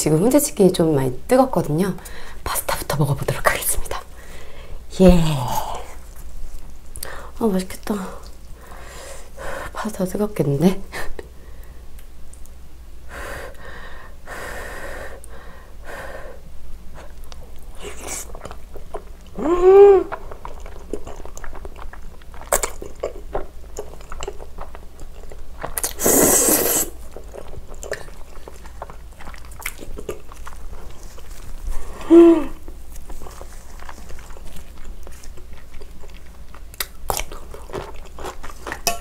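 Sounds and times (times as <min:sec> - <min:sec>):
person humming mmm: 0:19.3 - 0:20.2, 0:31.9 - 0:32.7
chewing and slurping noodles: 0:20.1 - 0:32.0, 0:32.7 - 0:39.0.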